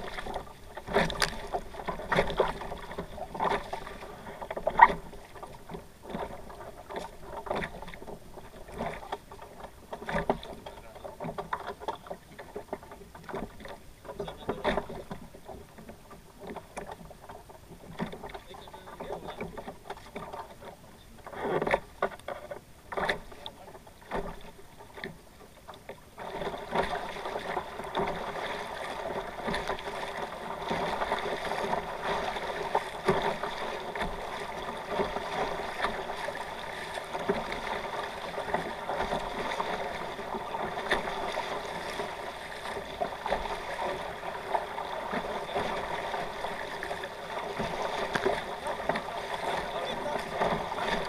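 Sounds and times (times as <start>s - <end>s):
water splashing against hulls: 0.0s - 51.0s.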